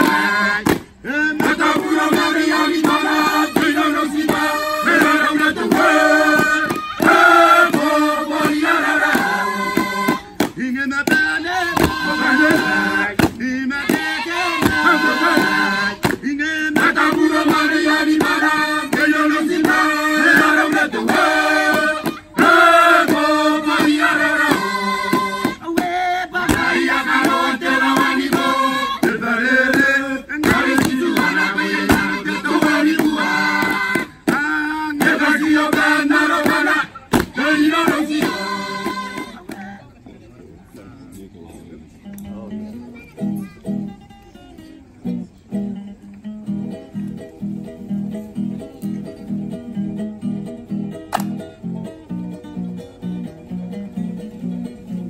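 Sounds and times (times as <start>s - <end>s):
chorus singing together: 0.0s - 39.9s.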